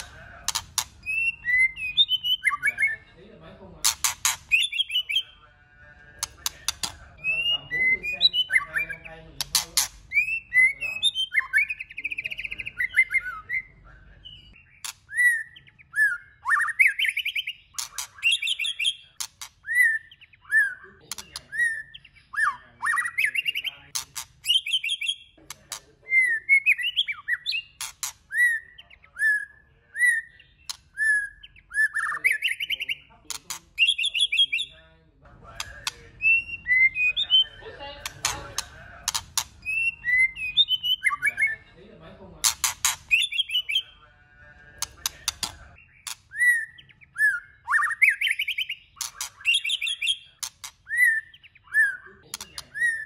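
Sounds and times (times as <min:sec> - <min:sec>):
bird singing whistled notes: 0:01.0 - 0:03.1, 0:04.5 - 0:05.4, 0:06.8 - 0:09.2, 0:10.1 - 0:23.8, 0:24.4 - 0:25.4, 0:26.1 - 0:33.1, 0:33.8 - 0:34.8, 0:35.6 - 0:37.7, 0:39.1 - 0:41.6, 0:43.1 - 0:44.0, 0:45.3 - 0:53.0.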